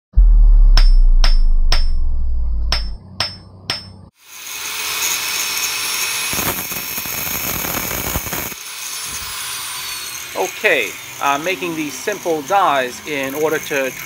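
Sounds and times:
grinder cutting steel: 2.7 - 14.0
angle grinder whine: 4.2 - 14.0.

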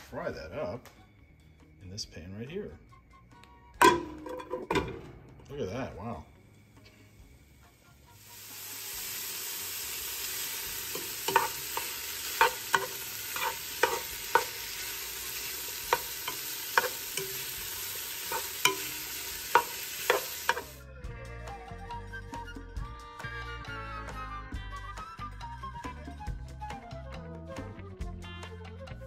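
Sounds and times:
music: 0.0 - 29.0
bacon sizzling in a pot: 7.6 - 20.9
spatula scraping a pot: 11.0 - 17.5.

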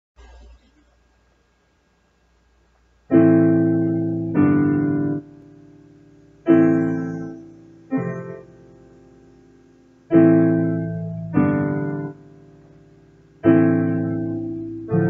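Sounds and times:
digital piano chords: 3.1 - 15.0.

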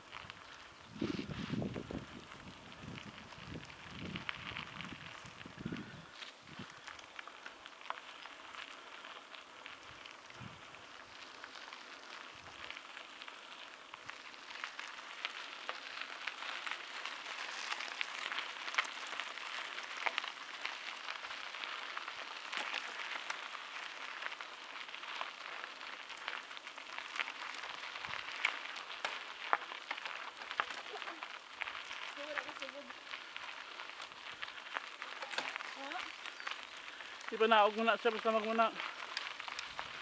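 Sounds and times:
bike tyres rolling on gravel: 0.0 - 40.0.

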